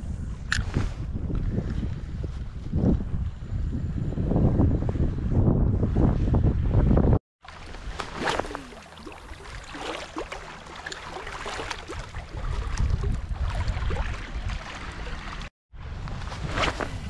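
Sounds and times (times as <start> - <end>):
wind rumble on microphone: 0.0 - 8.0, 11.5 - 17.0
seawater splashing around wading legs: 7.4 - 15.5.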